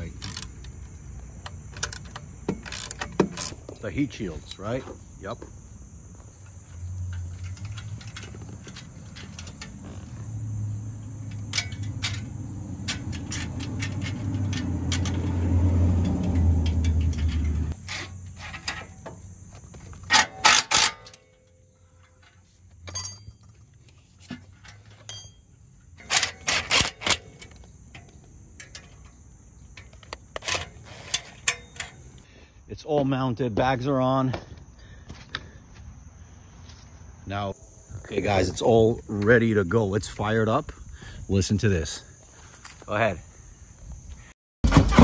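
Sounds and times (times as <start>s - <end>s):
metallic clicks of hand tools: 0.0s - 0.7s, 15.9s - 17.8s, 20.1s - 22.3s, 26.0s - 32.0s
high insect buzz: 4.9s - 16.6s.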